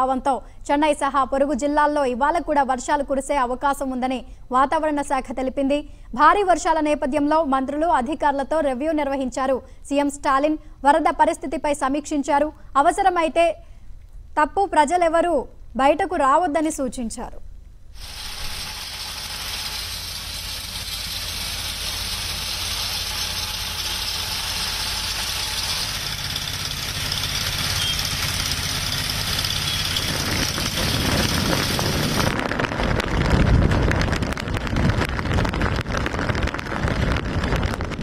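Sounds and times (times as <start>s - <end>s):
engine running: 18.0s - 38.0s.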